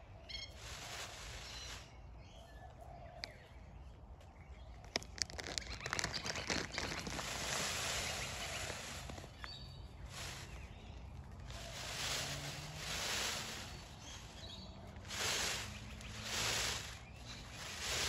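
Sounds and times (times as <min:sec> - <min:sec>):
feathers rustling: 0:00.5 - 0:02.0, 0:04.9 - 0:18.0
feathers rattling: 0:04.9 - 0:18.0.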